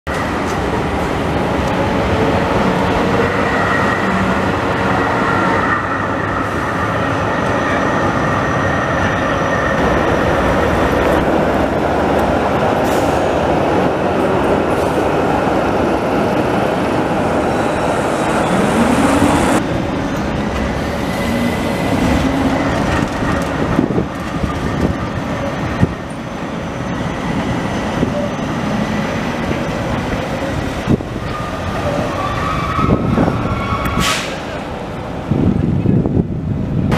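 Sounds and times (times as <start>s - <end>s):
tram wheels rumbling on rail: 0.1s - 36.9s
wheel squeal: 31.2s - 34.4s.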